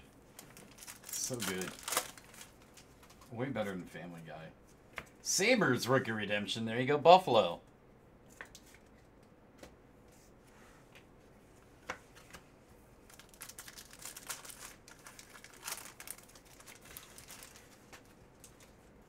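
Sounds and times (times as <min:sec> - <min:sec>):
wrapper tearing and crinkling: 0:00.4 - 0:03.2, 0:13.1 - 0:18.7.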